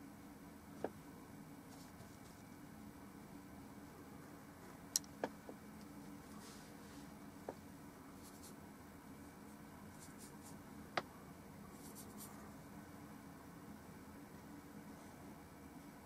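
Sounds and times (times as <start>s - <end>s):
low steady hum: 0.0s - 16.0s
paintbrush scratchy strokes: 1.7s - 2.6s, 8.1s - 8.6s, 9.5s - 10.6s, 11.7s - 12.6s.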